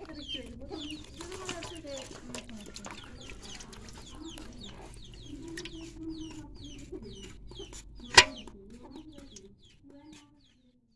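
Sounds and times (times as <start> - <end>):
chickens clucking: 0.0 - 10.6
fish splashing in a bucket: 8.1 - 8.4.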